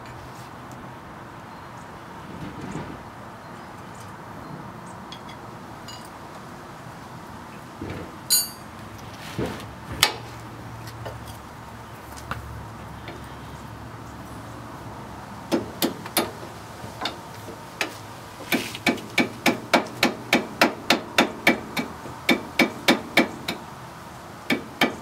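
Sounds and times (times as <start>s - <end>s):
hand tools clinking on metal: 5.1s - 6.2s, 8.3s - 8.7s.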